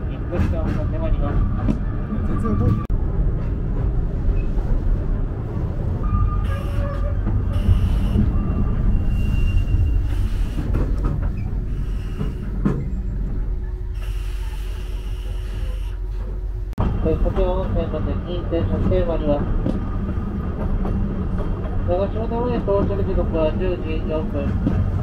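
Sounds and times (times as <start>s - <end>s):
train wheels rumbling on rails: 0.0s - 25.0s
faint high wheel squeal: 6.0s - 10.7s, 11.4s - 16.1s.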